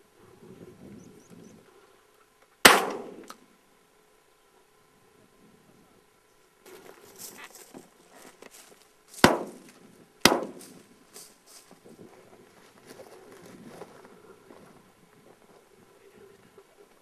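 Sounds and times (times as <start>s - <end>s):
shotgun shots with echo: 2.6s - 3.3s, 9.2s - 10.8s
soft scuffing: 6.7s - 9.8s.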